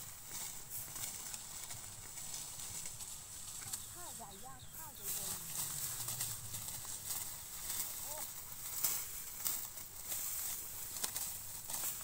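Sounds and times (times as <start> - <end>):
dry straw rustling and crunching: 0.0 - 12.0
steady high hiss: 0.0 - 12.0.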